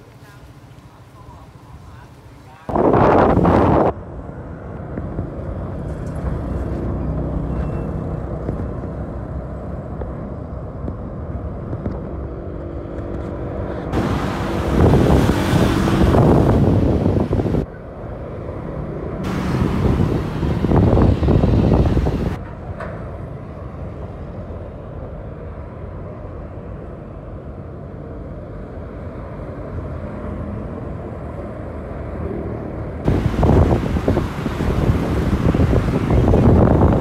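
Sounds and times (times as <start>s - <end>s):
low engine rumble: 0.0s - 37.0s
wind buffeting microphone: 2.7s - 24.1s, 33.0s - 37.0s.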